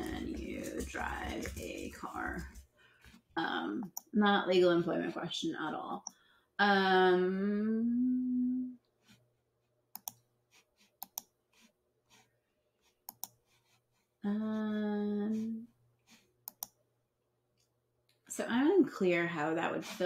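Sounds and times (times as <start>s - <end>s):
computer mouse clicking: 10.0s - 10.2s, 11.0s - 11.3s, 13.1s - 13.4s, 16.4s - 16.8s.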